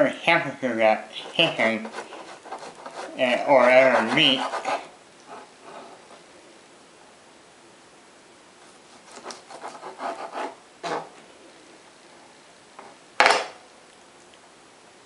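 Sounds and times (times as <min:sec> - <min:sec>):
knife sawing through raw chicken: 0:01.2 - 0:06.0, 0:09.0 - 0:11.1.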